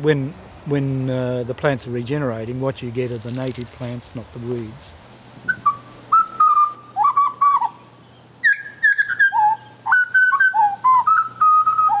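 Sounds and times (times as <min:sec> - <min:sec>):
fluty whistled notes: 0:05.5 - 0:12.0.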